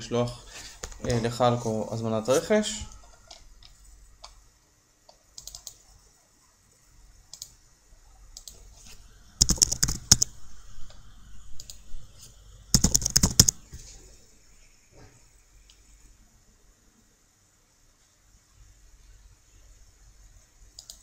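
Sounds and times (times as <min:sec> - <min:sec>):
typing on computer keyboard: 0:05.4 - 0:05.8, 0:09.4 - 0:10.4, 0:12.7 - 0:13.6.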